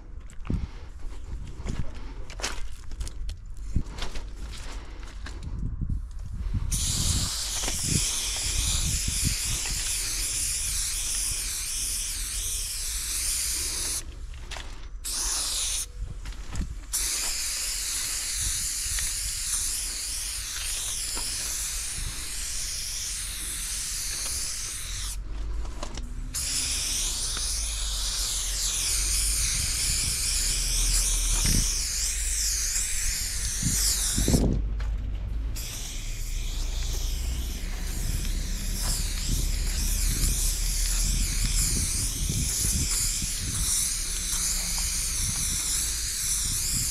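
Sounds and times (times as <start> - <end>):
aerosol spray can hissing: 6.7 - 14.1, 15.0 - 15.9, 16.9 - 25.2, 26.1 - 34.6, 35.5 - 46.9.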